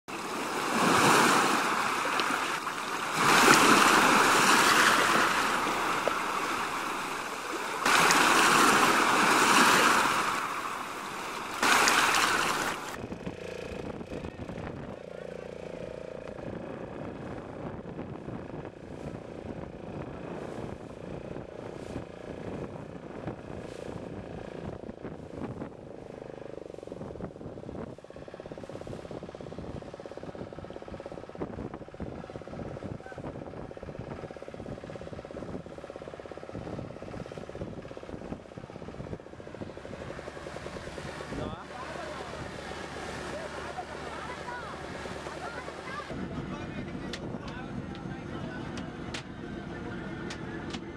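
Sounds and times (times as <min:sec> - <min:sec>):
boat engine knocking: 0:01.6 - 0:50.9
wind buffeting microphone: 0:16.3 - 0:43.4.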